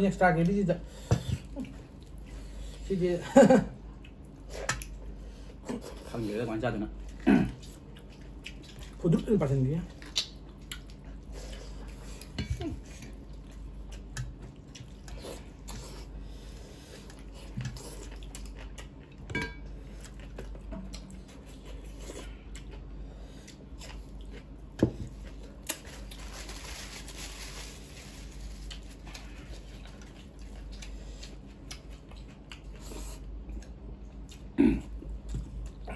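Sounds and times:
chewing: 7.0 - 16.2, 16.8 - 26.2, 28.6 - 34.5.

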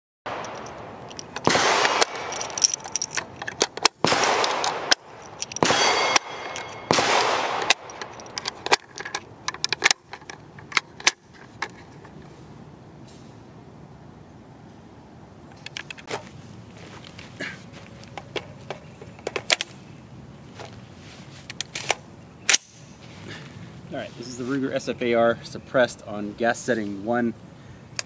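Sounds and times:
cartridges scraping into magazine: 0.4 - 7.0.

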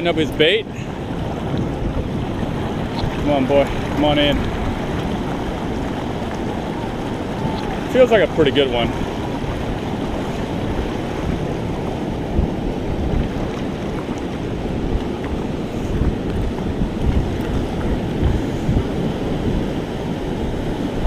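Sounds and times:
ocean surf washing onto beach: 0.0 - 21.0
wind buffeting microphone: 0.0 - 21.0.

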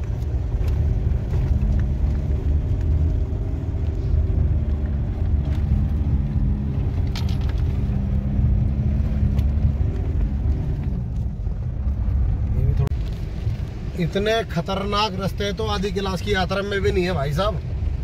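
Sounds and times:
diesel engine rumble in cabin: 0.0 - 18.0
clicks and rattles: 7.0 - 7.8.

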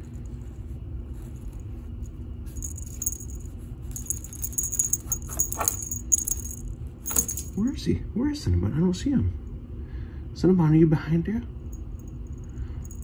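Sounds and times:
steady low hum: 0.0 - 13.0
small bell jingling: 2.5 - 7.7, 11.7 - 13.0.

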